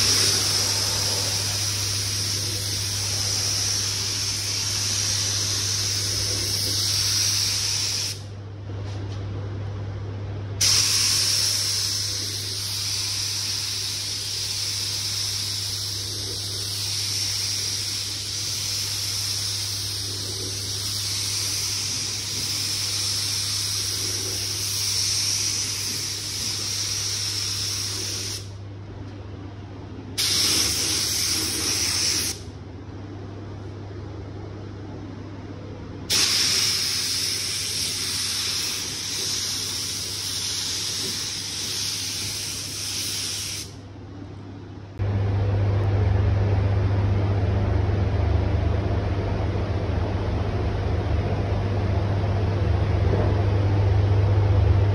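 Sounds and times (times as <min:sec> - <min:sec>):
spray gun hissing: 0:00.0 - 0:08.2, 0:10.6 - 0:28.5, 0:30.2 - 0:32.4, 0:36.1 - 0:43.8
steady low hum: 0:00.0 - 0:54.9.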